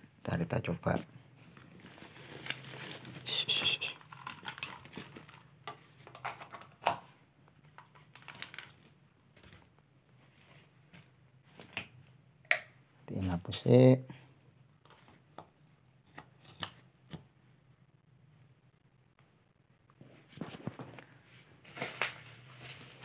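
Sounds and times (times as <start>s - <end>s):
plastic wrapping crinkling: 1.5s - 7.0s, 7.6s - 12.0s, 20.4s - 23.0s.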